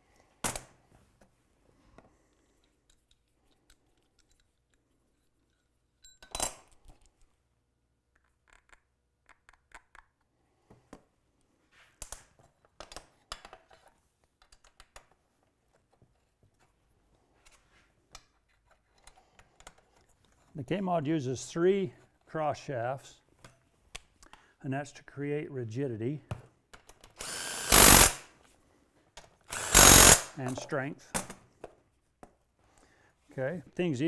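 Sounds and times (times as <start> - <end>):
small metal hardware clinking: 5.4 - 7.4.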